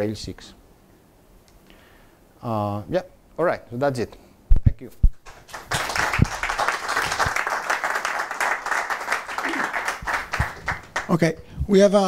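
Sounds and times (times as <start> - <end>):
audience applauding: 5.2 - 11.2.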